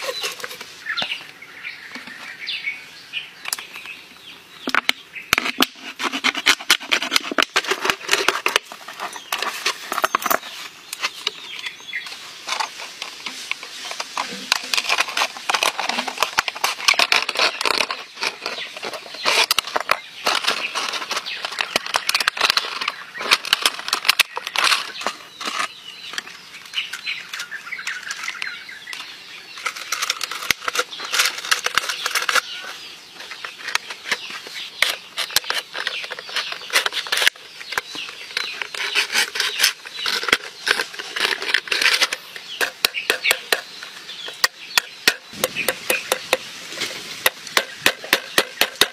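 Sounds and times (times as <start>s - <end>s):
plastic crackling: 4.6s - 48.9s
knife cutting plastic bottle: 4.7s - 10.4s, 12.5s - 25.7s, 33.2s - 43.6s.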